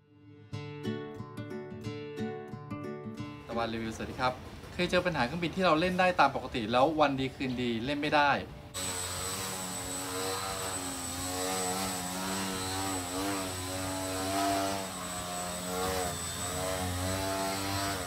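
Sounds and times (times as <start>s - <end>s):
rc airplane motor whine: 8.8s - 18.0s.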